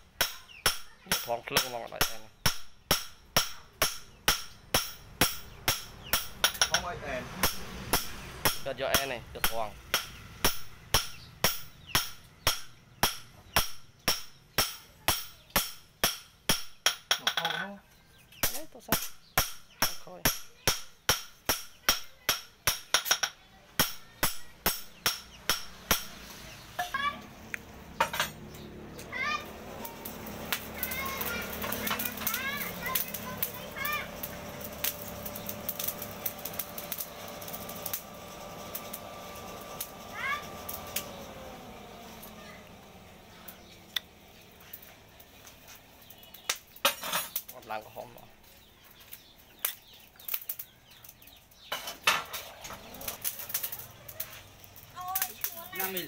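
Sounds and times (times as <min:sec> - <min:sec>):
hammer striking steel: 0:00.2 - 0:17.6, 0:18.4 - 0:26.2
forge fire crackling: 0:23.8 - 0:56.0
forge blower whine: 0:27.2 - 0:45.4.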